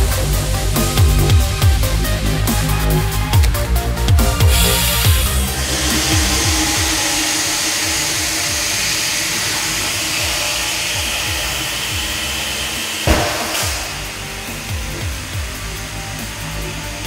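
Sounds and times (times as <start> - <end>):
compressed air hissing: 0.0 - 17.0
electronic music with bass beat: 0.0 - 17.0
balloon bursting: 13.0 - 14.3.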